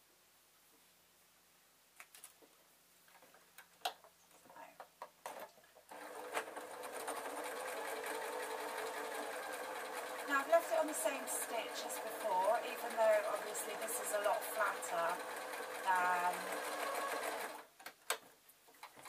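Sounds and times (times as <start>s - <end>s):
electric sewing machine stitching: 5.9s - 17.7s.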